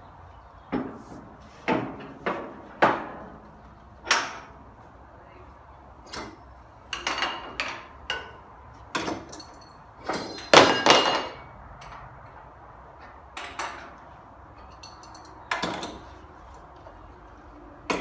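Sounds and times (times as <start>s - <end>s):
metal clanks and knocks: 6.1s - 12.1s, 13.0s - 14.0s, 14.6s - 16.2s.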